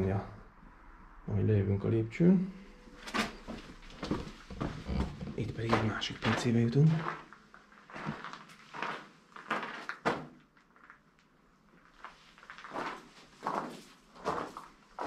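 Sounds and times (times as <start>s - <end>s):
footsteps: 2.9s - 10.3s, 11.8s - 15.0s.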